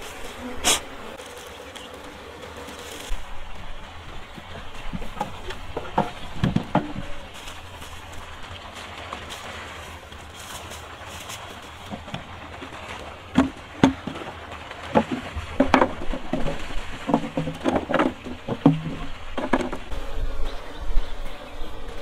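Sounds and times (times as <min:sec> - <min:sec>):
wooden frames knocking: 0:04.4 - 0:07.3, 0:13.3 - 0:19.9.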